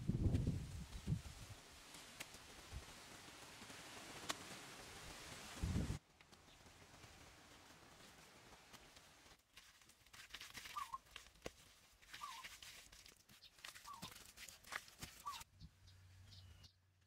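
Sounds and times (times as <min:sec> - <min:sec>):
small bird chirping: 0:10.7 - 0:11.0, 0:12.2 - 0:12.5, 0:13.3 - 0:14.2, 0:15.2 - 0:16.8.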